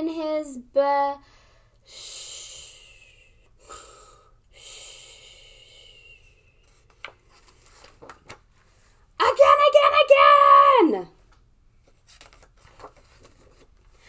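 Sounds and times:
woman breathing like snoring: 0:01.4 - 0:06.5.

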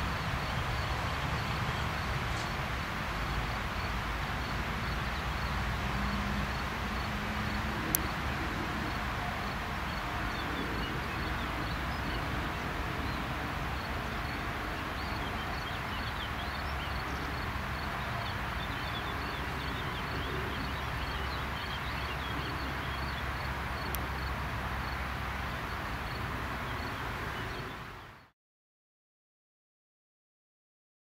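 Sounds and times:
distant jet roar: 0:00.0 - 0:28.0
birds chirping: 0:07.7 - 0:28.3.

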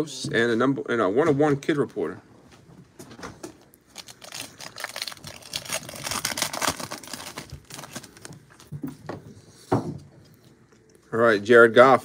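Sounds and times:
foil wrapper crinkling and tearing: 0:03.6 - 0:08.7.

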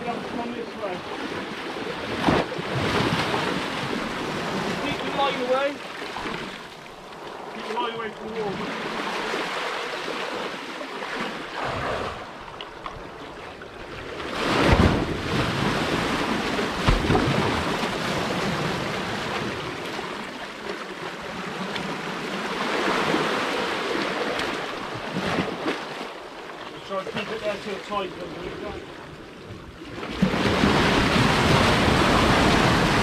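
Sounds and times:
waves washing over concrete steps: 0:00.0 - 0:13.0, 0:14.0 - 0:29.0, 0:29.8 - 0:33.0.

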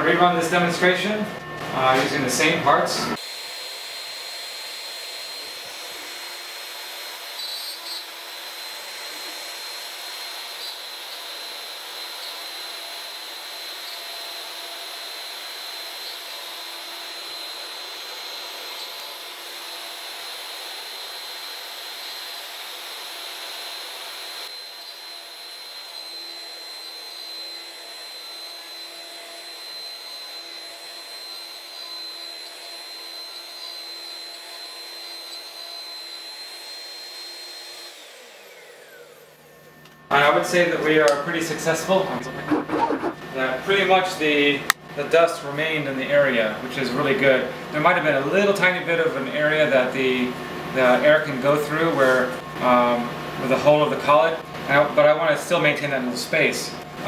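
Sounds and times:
router spindle whine: 0:00.1 - 0:44.8, 0:45.4 - 0:55.1
end mill cutting wood: 0:03.2 - 0:44.8.

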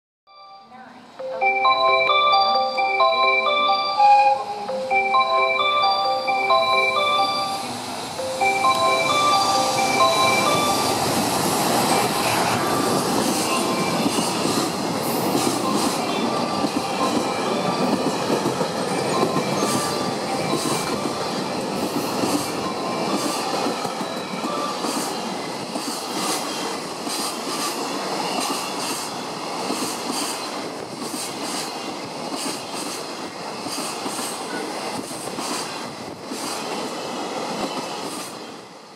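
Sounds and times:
train wheels rumbling and rattling: 0:08.0 - 0:38.7.

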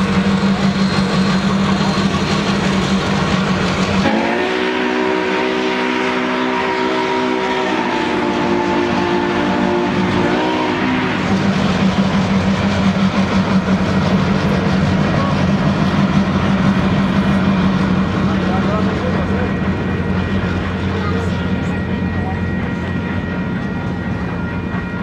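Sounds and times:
train rumbling past: 0:00.0 - 0:25.0
train horn blast: 0:04.0 - 0:11.5.

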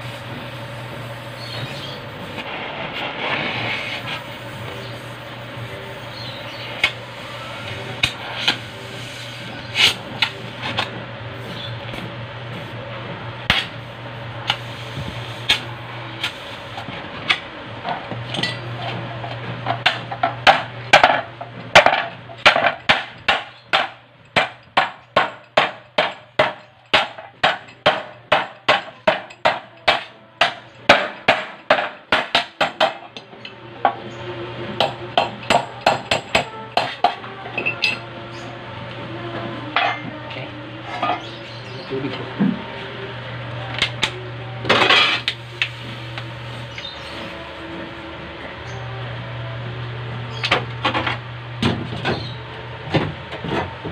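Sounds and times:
hammer beating sheet metal: 0:19.8 - 0:33.1, 0:34.8 - 0:37.2.

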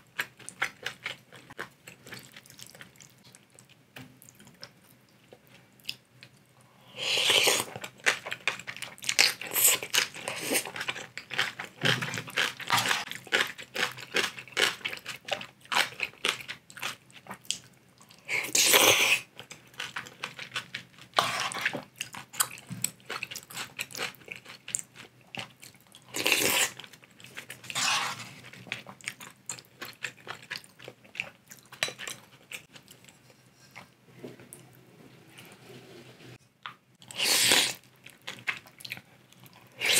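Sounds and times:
wet chewing with crunches: 0:00.2 - 0:06.0
noodle slurps: 0:27.7 - 0:28.4.

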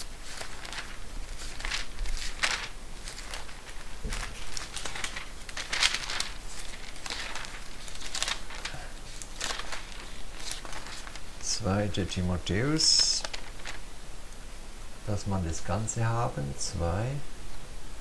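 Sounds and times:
book pages rustling: 0:00.0 - 0:11.5, 0:13.2 - 0:13.8.

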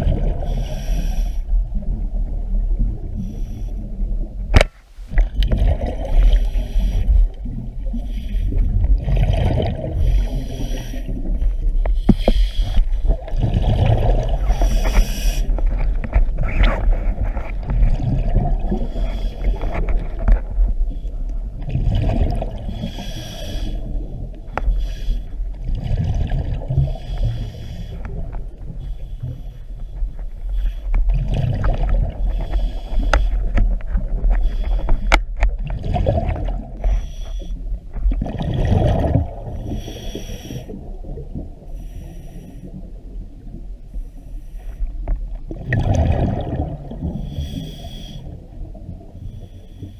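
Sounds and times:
regulator hiss on inhale: 0:00.4 - 0:01.6, 0:03.2 - 0:03.9, 0:06.2 - 0:07.3, 0:07.9 - 0:08.6, 0:10.0 - 0:13.0, 0:14.4 - 0:16.2, 0:18.7 - 0:19.9, 0:22.7 - 0:24.0, 0:24.6 - 0:25.5, 0:26.9 - 0:28.2, 0:28.8 - 0:31.0, 0:32.2 - 0:33.6, 0:34.2 - 0:35.2, 0:36.8 - 0:37.6, 0:39.6 - 0:40.8, 0:41.7 - 0:42.8, 0:43.9 - 0:44.9, 0:47.2 - 0:48.5, 0:49.2 - 0:49.9
bubbles bursting on exhale: 0:08.7 - 0:10.4, 0:13.0 - 0:20.3, 0:21.6 - 0:22.8, 0:25.6 - 0:27.0, 0:35.6 - 0:36.8, 0:38.1 - 0:39.8, 0:45.5 - 0:47.4.

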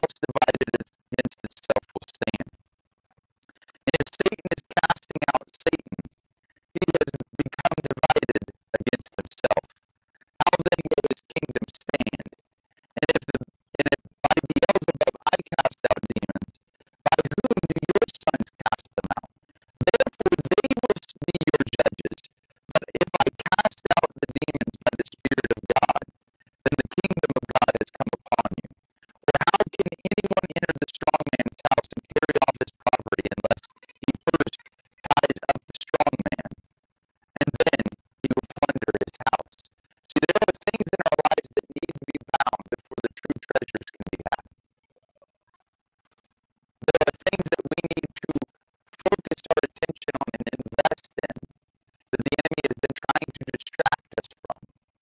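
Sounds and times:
man speaking: 0:00.0 - 0:02.5, 0:03.9 - 0:06.0, 0:06.8 - 0:09.6, 0:10.4 - 0:12.3, 0:13.0 - 0:16.4, 0:17.0 - 0:19.2, 0:19.8 - 0:26.0, 0:26.7 - 0:28.6, 0:29.3 - 0:36.5, 0:37.4 - 0:44.4, 0:46.8 - 0:48.4, 0:49.0 - 0:51.4, 0:52.2 - 0:54.6.

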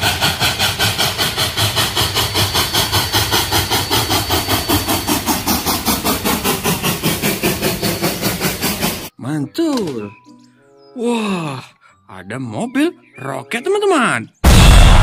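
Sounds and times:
steam locomotive chuffing: 0:00.0 - 0:09.1.

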